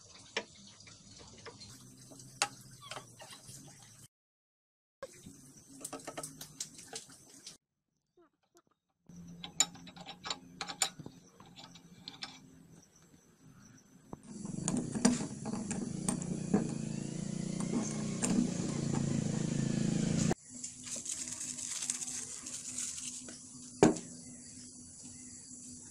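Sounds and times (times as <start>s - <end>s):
light metal clicks and knocks: 9.4s - 12.5s.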